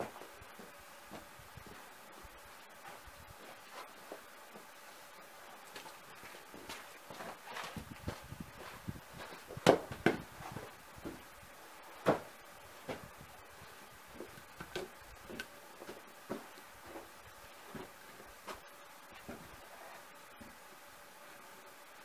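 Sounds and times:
log thumping on ground: 9.6 - 10.3, 12.0 - 12.3
log knocking on wood: 14.2 - 15.5.

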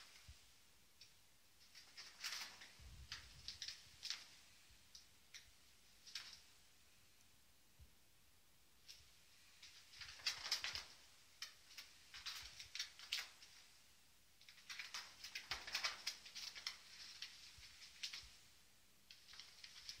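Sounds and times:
kittens scampering on carpet: 8.9 - 13.7, 14.4 - 18.4.

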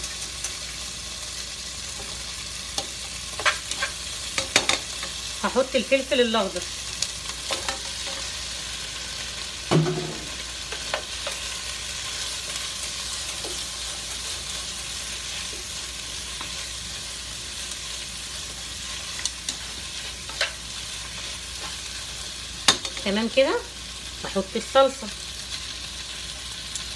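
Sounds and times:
vegetables sizzling in oil: 0.0 - 26.9.

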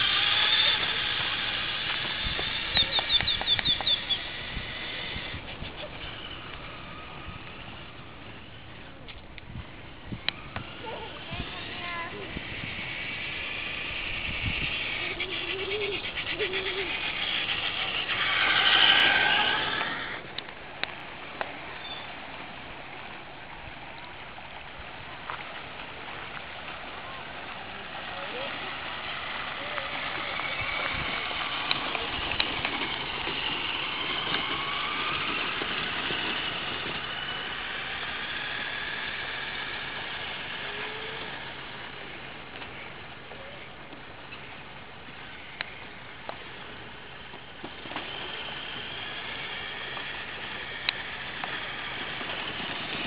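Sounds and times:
sharp clicks: 0.0 - 4.3
toy truck motor whining: 0.0 - 23.1, 25.6 - 53.0
steady rushing noise: 0.0 - 53.0
tyre noise on pavement: 0.0 - 53.0.

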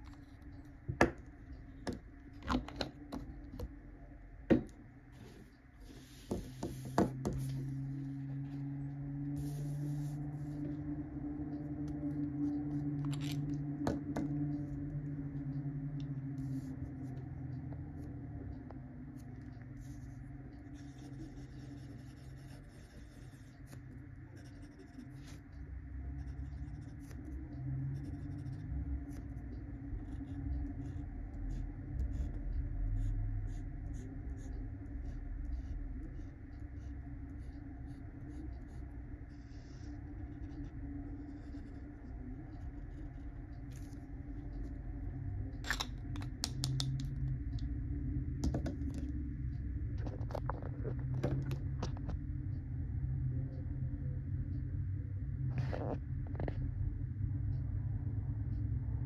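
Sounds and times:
low hum: 0.0 - 59.0
fountain pen scratching on paper: 9.4 - 10.8, 16.4 - 17.2, 19.2 - 25.4, 26.2 - 27.4, 28.0 - 29.4, 30.0 - 42.1.

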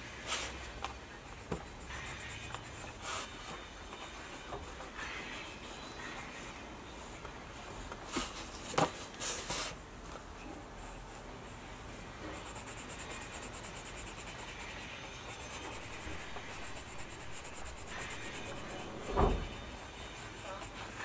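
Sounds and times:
pencil scratching on paper: 1.2 - 6.5, 12.2 - 21.0.

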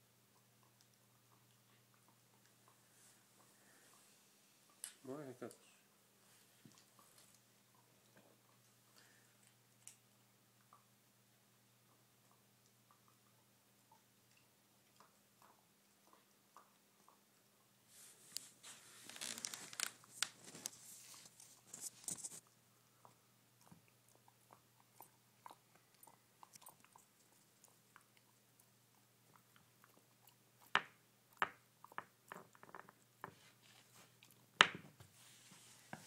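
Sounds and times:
puppy chewing and crunching: 0.0 - 5.7, 11.6 - 34.5.

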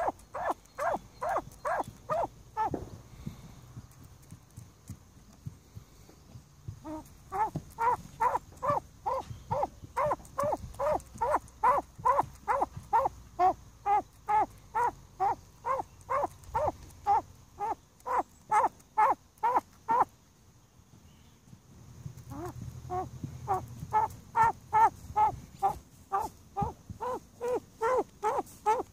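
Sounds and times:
pheasant pecking knocks: 6.7 - 20.1, 22.2 - 28.9.

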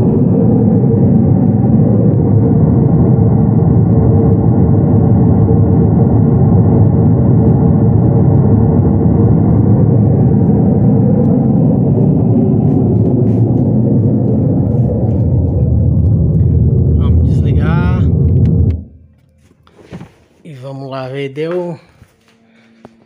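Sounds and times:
pink noise through speakers: 8.8 - 18.8.

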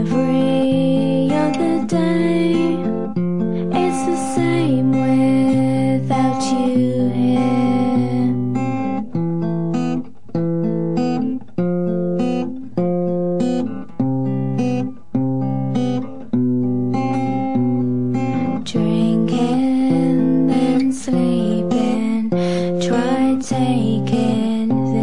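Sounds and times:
guitar playing chords: 0.0 - 25.0.

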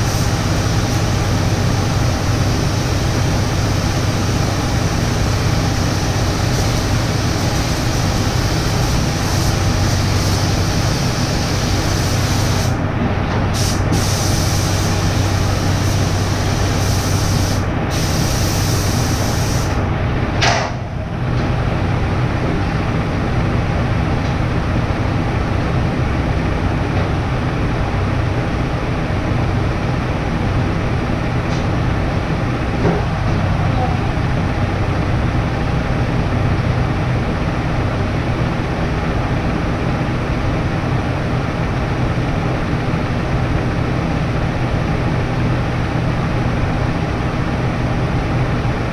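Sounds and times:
paint spray gun hissing: 0.0 - 12.8, 13.6 - 19.8.

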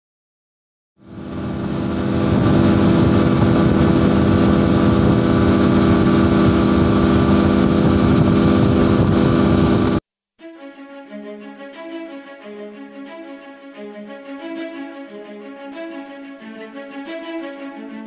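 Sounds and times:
outboard motor running: 1.1 - 10.0
rush of water: 1.1 - 10.0.

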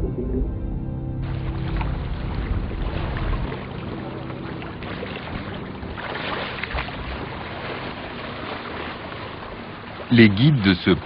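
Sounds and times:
low rumble: 0.0 - 8.4
water splashing against boat: 1.2 - 11.0.

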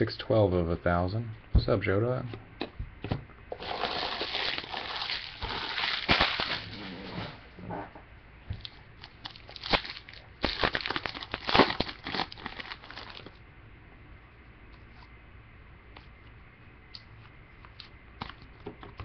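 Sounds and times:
pack tearing open: 3.6 - 6.9, 9.0 - 13.3
foil wrappers crinkling: 3.6 - 7.0, 9.0 - 13.4.

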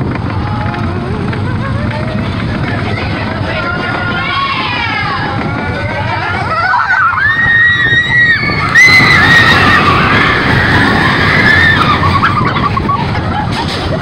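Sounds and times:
roller coaster rumbling on track: 0.0 - 14.0
wind on microphone: 0.0 - 14.0
riders screaming: 3.4 - 13.3.

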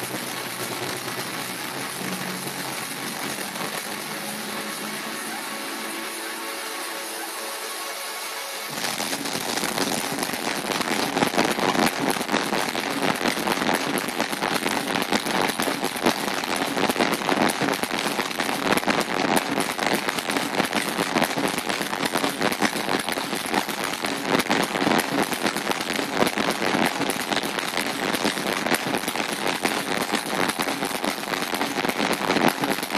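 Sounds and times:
crowd applauding and cheering: 0.0 - 10.5.

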